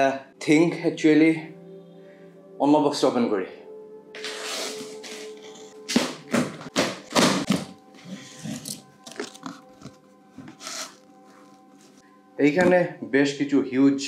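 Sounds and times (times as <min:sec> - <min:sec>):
faint background music: 0:00.0 - 0:14.0
cardboard taps and rustles: 0:05.9 - 0:07.8
cutter tearing packing tape: 0:10.5 - 0:11.0.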